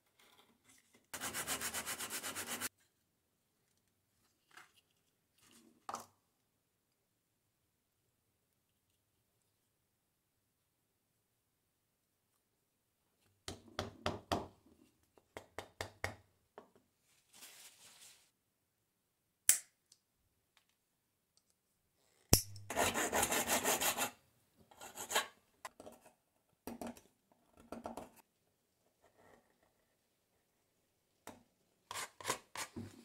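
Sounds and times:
hand file scraping wood: 1.2s - 2.7s, 22.7s - 24.2s, 31.9s - 32.8s.

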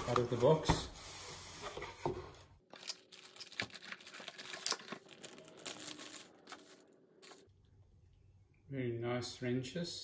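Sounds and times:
plastic bag crinkling: 2.7s - 7.5s.

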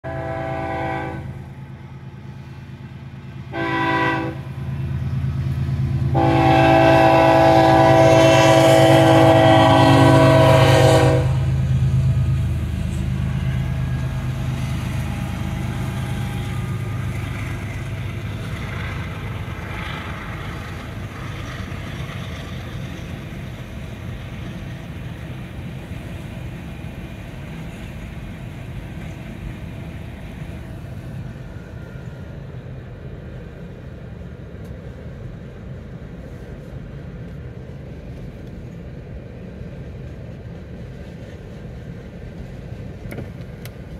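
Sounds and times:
locomotive air horn blasts: 0.0s - 1.4s, 3.5s - 4.6s, 6.0s - 11.6s
freight train rumbling past: 0.0s - 43.9s.

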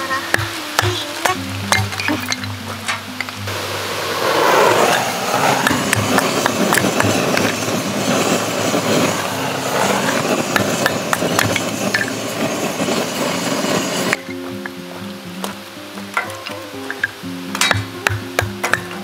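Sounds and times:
gas torch hissing: 3.4s - 14.6s.

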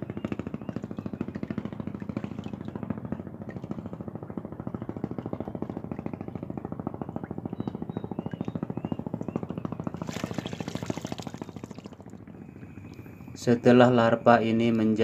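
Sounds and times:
engine pulsing: 0.0s - 15.0s
water pouring and dripping: 9.9s - 12.1s.

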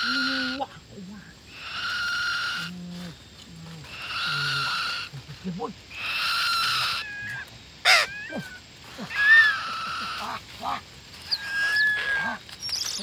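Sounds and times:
hawks and parrot screeching: 0.0s - 0.6s, 1.5s - 2.7s, 3.8s - 5.1s, 5.9s - 13.0s
thin whistled bird notes: 11.2s - 13.0s.

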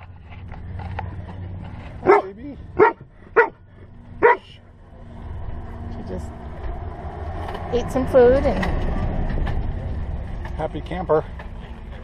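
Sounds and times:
dog barking: 2.0s - 3.6s, 4.2s - 4.5s.

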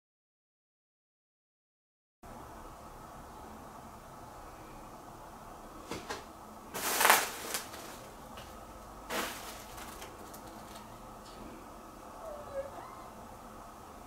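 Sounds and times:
steady low hiss: 2.3s - 12.4s
knocks and rustles: 5.8s - 10.9s.

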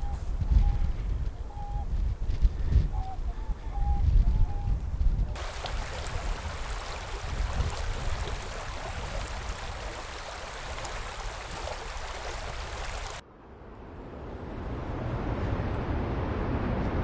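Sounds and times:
river running over rocks: 5.4s - 13.2s.

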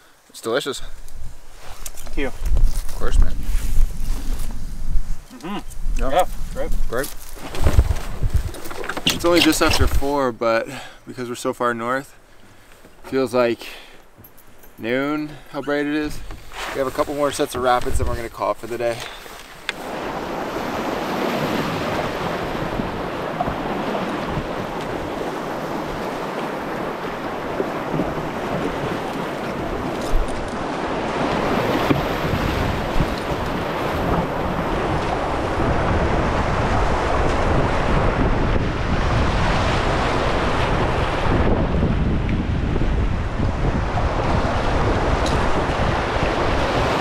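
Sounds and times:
wind buffeting microphone: 1.0s - 10.2s, 17.6s - 18.4s, 19.8s - 47.0s.

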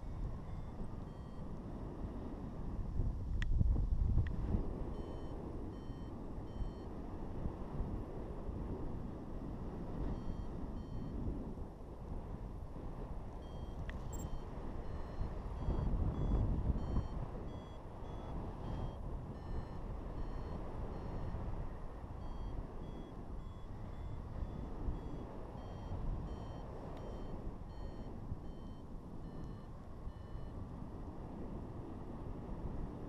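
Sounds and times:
wind on microphone: 0.0s - 33.0s
variometer beeping: 0.4s - 1.5s, 4.9s - 6.9s, 10.0s - 11.2s, 13.4s - 30.7s.

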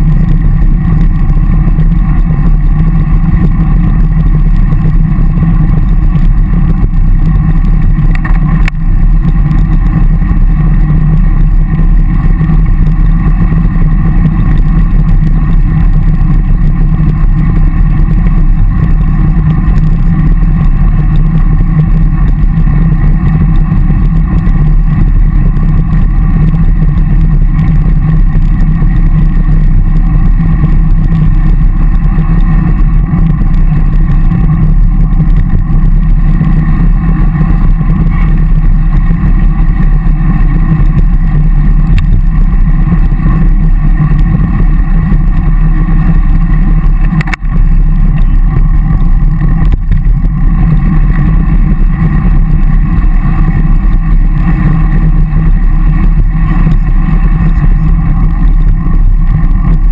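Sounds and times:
road and tyre noise: 0.0s - 59.9s
wind rumble on microphone: 0.0s - 59.9s
sharp click: 47.0s - 47.5s.

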